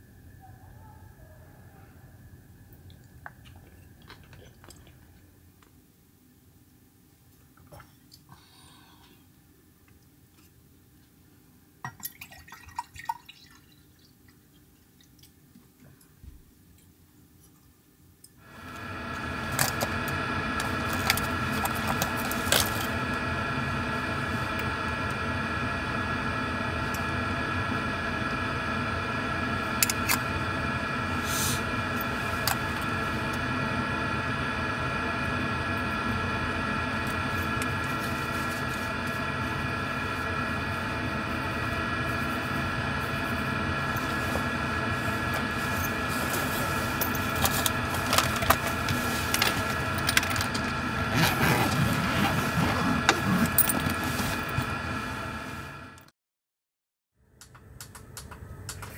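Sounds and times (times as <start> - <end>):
hair dryer running: 18.4 - 56.0.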